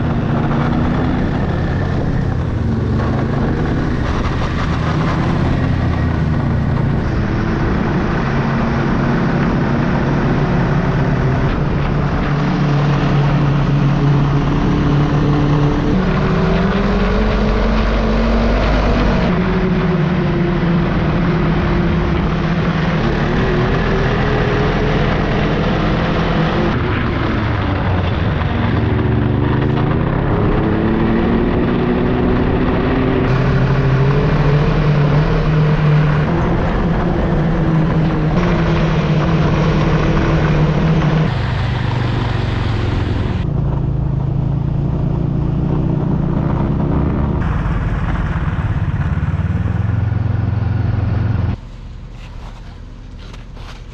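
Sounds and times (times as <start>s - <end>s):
snowmobile engine revving: 0.0s - 53.9s.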